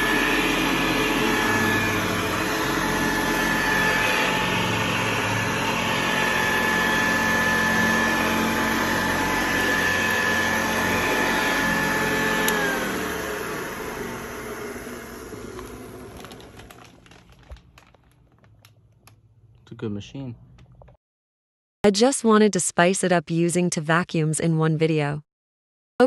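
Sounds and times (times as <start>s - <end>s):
vacuum cleaner motor whining: 0.0s - 18.1s
vacuum switch click: 12.4s - 12.7s.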